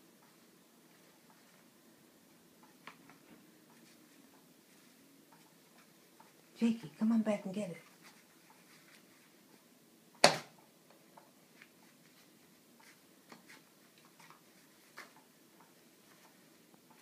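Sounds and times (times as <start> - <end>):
sharp knock: 10.2 - 10.5.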